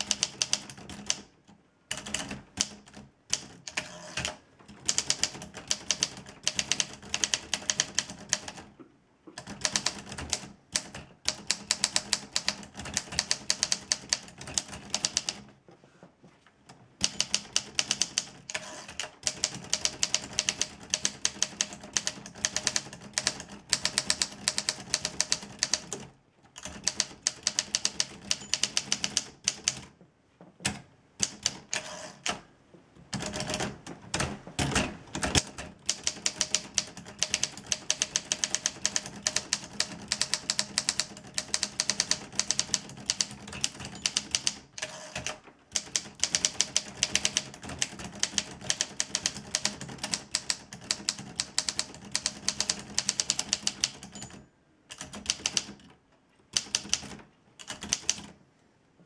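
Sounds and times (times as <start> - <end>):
manual typewriter typing fast: 0.0 - 1.3, 1.9 - 8.7, 9.4 - 15.5, 17.0 - 29.9, 31.2 - 32.4, 33.1 - 58.4.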